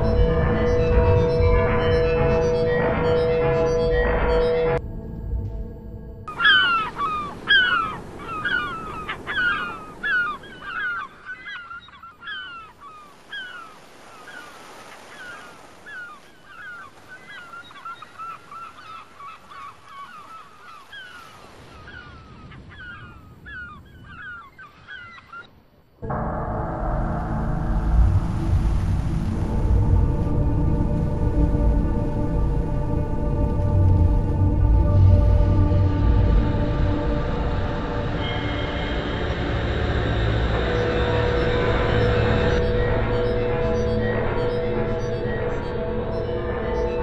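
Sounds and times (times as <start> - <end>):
geese honking: 6.3 - 12.6.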